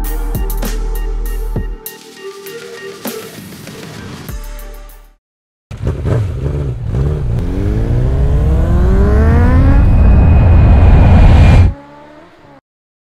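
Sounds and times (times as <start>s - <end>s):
motorcycle engine accelerating: 5.7s - 12.6s.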